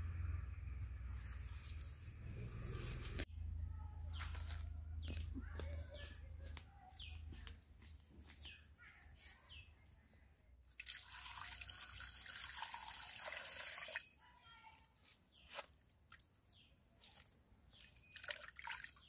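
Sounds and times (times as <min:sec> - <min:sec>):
water pouring and splashing: 0:10.6 - 0:14.2, 0:17.8 - 0:19.0.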